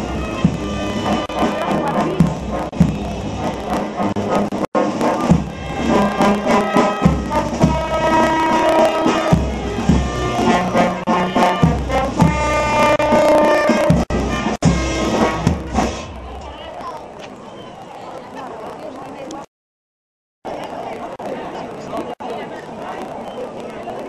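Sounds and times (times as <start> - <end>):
brass band playing: 0.0 - 16.4
sustained horn notes: 0.0 - 16.4
steady drum strokes: 0.0 - 16.5.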